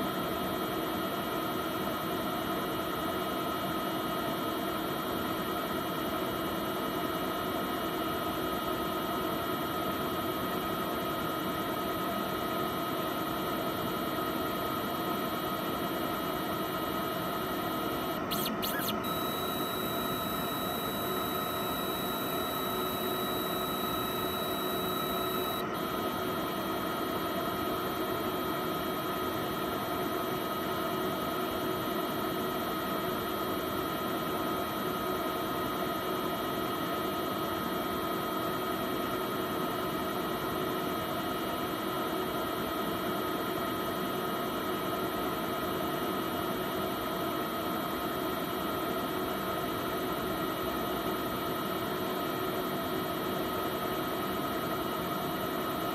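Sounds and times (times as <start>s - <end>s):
machine hum: 17.7s - 25.8s
whining tones: 18.2s - 25.6s.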